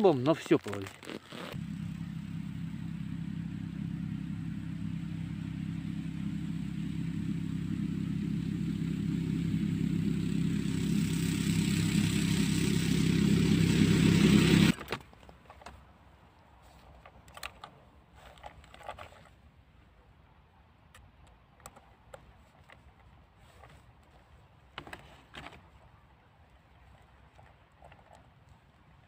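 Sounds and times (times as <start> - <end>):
tackle clicking and rustling: 0.0 - 1.6, 14.8 - 19.4, 20.9 - 26.0, 26.6 - 29.0
snowmobile engine approaching: 1.2 - 14.8.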